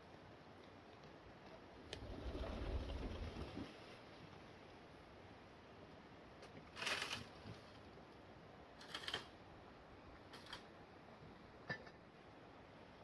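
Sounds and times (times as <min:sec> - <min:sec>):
faint steady hiss: 0:00.0 - 0:13.0
rustling scrapes: 0:06.8 - 0:07.9.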